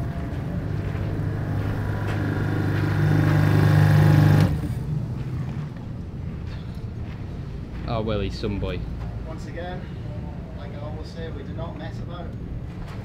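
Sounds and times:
pressure washer motor humming: 0:00.0 - 0:04.8.

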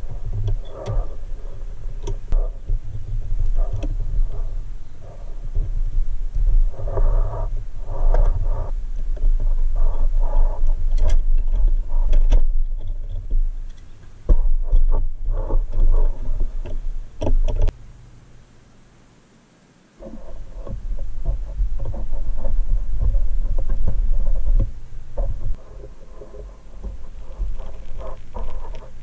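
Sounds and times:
low rumble: 0:00.0 - 0:18.1, 0:20.0 - 0:29.0
metal parts rubbing and scraping: 0:20.0 - 0:29.0.

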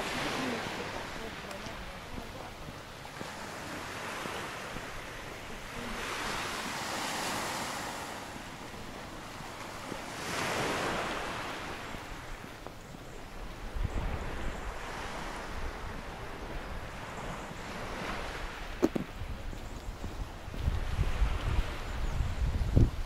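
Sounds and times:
sea waves breaking on shore: 0:00.0 - 0:22.8.

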